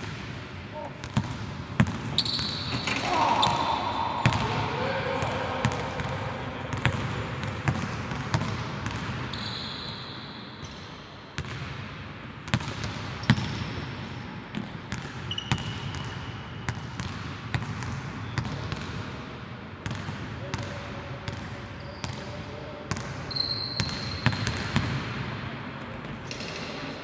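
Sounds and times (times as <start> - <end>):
sneaker squeaks on floor: 2.1 - 4.4, 9.2 - 10.9, 13.2 - 13.8, 15.2 - 16.8, 21.8 - 22.2, 23.2 - 24.6.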